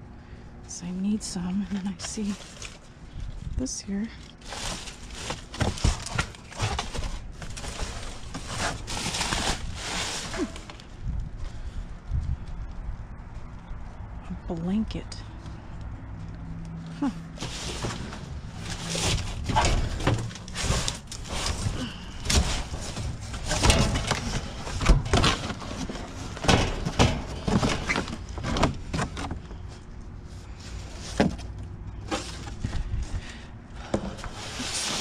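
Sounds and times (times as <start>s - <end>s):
cardboard scraping in metal dumpster: 2.0s - 2.9s, 4.4s - 10.9s, 17.3s - 29.3s, 32.0s - 32.9s, 33.8s - 35.0s.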